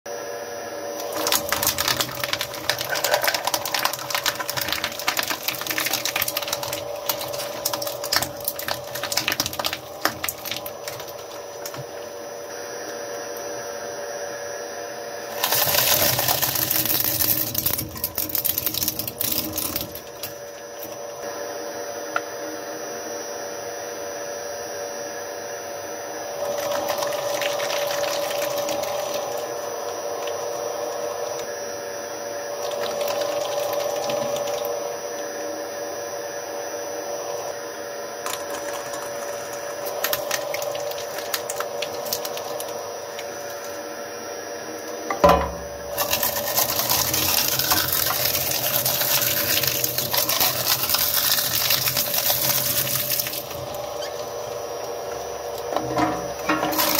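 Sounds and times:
shredder motor hum: 0.1 - 56.9
cutters crunching through plastic: 1.0 - 11.9, 15.3 - 20.9, 38.2 - 43.7, 45.9 - 54.5, 56.7 - 56.9.

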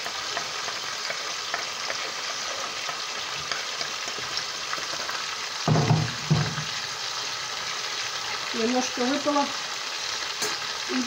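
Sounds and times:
onion sizzling in hot oil: 0.0 - 11.0
brief thump: 5.7 - 6.7.

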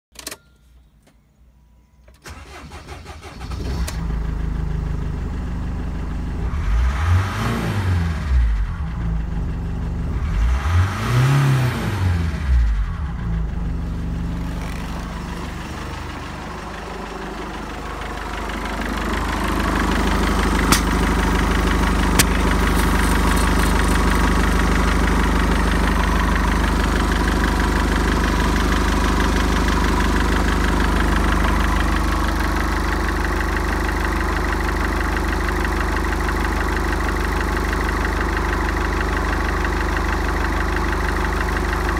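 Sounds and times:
diesel engine starting and revving: 2.2 - 41.9.

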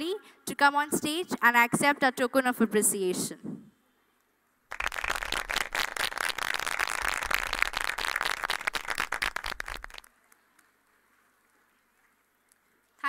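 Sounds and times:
audience applauding: 4.7 - 10.1.

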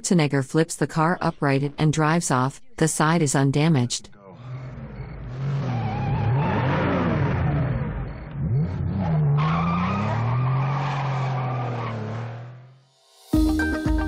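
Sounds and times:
tyre squeal: 4.4 - 12.3
car engine revving hard: 4.4 - 12.8.

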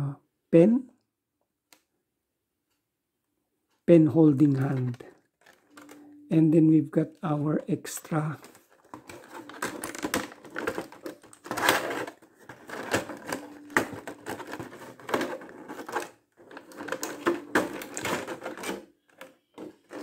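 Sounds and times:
plastic tray crackling: 4.4 - 6.1, 7.9 - 20.0.

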